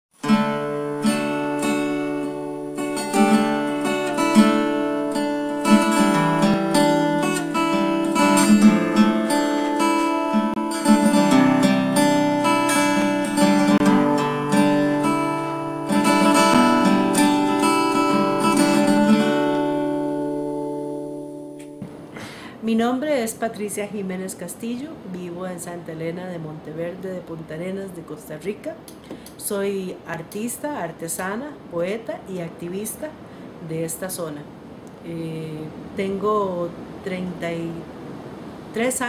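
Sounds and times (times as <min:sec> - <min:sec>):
acoustic guitar music: 0:00.1 - 0:29.2.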